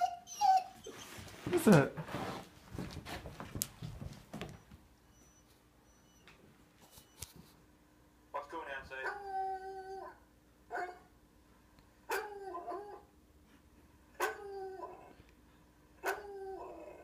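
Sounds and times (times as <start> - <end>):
dog baying through speakers: 8.9 - 11.1.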